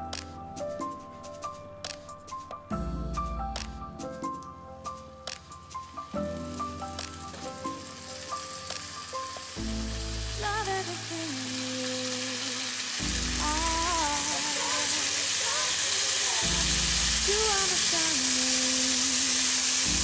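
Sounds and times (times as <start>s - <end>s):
bacon sizzling in a frying pan: 5.9s - 20.0s.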